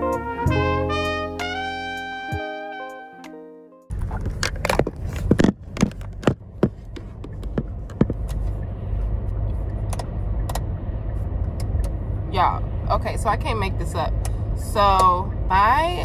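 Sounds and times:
sharp clicks and knocks: 3.9 - 8.4
car cabin hum: 3.9 - 16.0.

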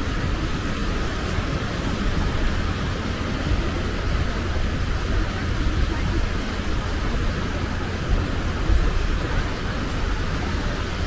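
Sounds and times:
small waves breaking on beach: 0.0 - 11.0
wind buffeting microphone: 0.0 - 11.0.

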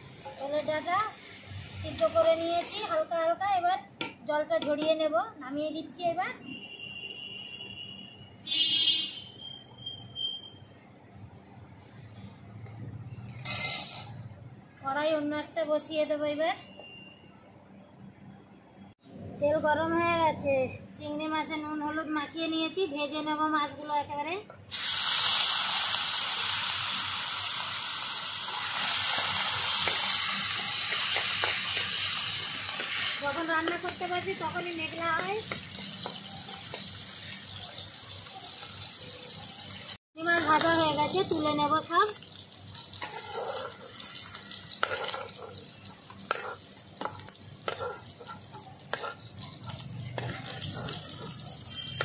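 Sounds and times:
prawns sizzling in hot oil: 0.0 - 3.3, 13.2 - 14.2, 24.7 - 52.0
metal spoon clinking on pan: 44.8 - 52.0
spatula tapping: 46.2 - 52.0.

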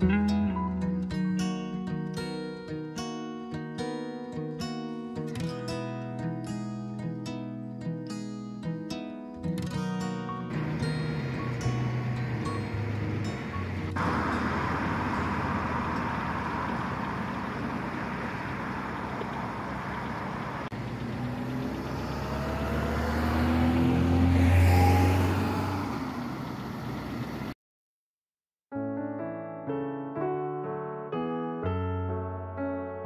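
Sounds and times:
car engine passing: 10.5 - 27.6.

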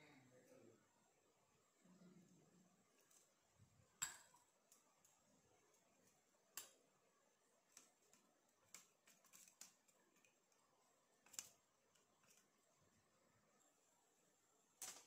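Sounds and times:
spoon stirring paste in metal bowl: 2.9 - 13.1.

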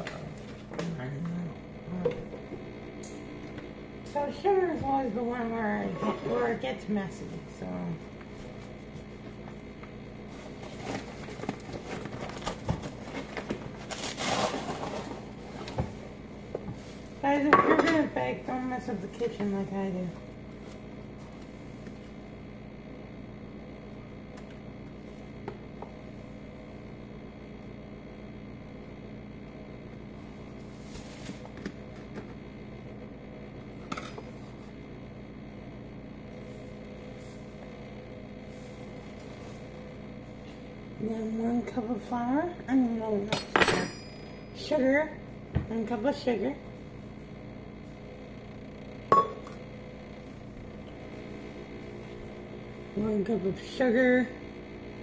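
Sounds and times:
steady low hum: 0.0 - 55.0
measuring cup clinking on metal pot: 49.1 - 49.5.

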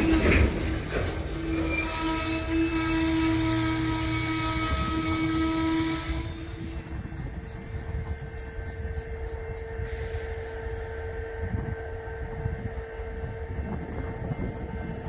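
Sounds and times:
freight cars rumbling past: 0.0 - 5.2
metallic squeal of steel wheels: 0.0 - 11.0.

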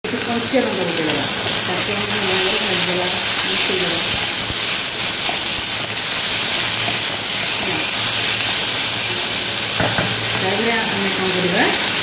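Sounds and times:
onions sizzling in hot oil: 0.1 - 12.0.

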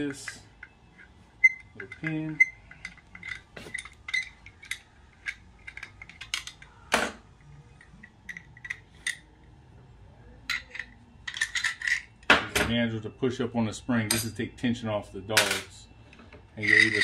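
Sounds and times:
metal clicks and clinks: 0.0 - 6.7.

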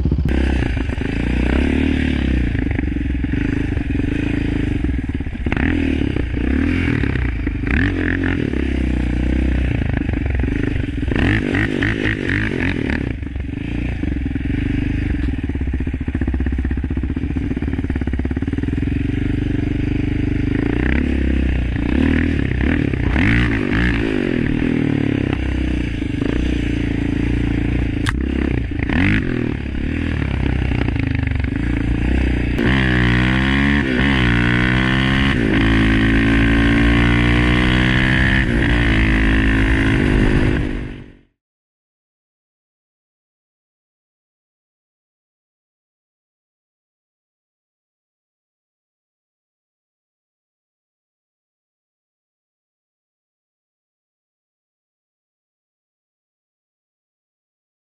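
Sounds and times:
loud single-cylinder engine revving: 0.0 - 41.3.

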